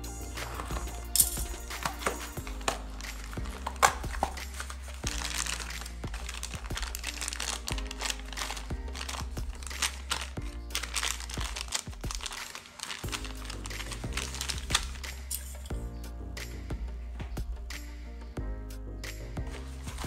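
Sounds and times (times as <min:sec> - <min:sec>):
background music with bass: 0:00.0 - 0:12.4, 0:13.0 - 0:20.0
packaging crinkling and rustling: 0:00.4 - 0:15.0.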